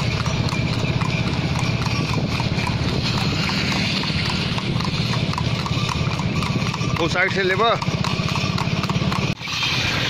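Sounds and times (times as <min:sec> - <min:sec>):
horse hooves clip-clopping on asphalt: 0:00.0 - 0:09.5.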